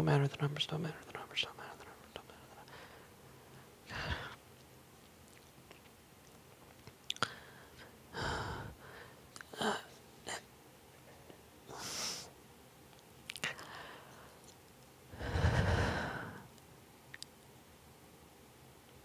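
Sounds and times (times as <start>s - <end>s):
person breathing: 2.6s - 4.4s, 7.2s - 9.2s, 13.5s - 14.4s, 15.1s - 16.5s
mouth clicks: 17.1s - 17.3s.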